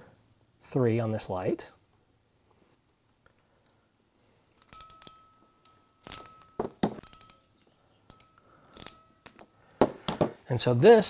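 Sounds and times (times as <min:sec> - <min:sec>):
ratcheting crimper clicking: 0:04.5 - 0:09.5.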